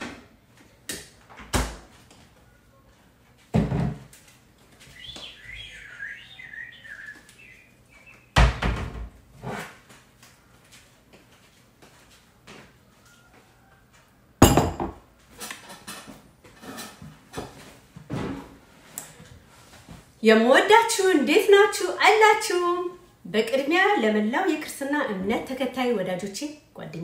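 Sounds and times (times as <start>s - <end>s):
cabinet and fridge doors thudding shut: 3.5s - 4.1s, 8.4s - 9.1s
wavering chirping: 5.0s - 8.3s.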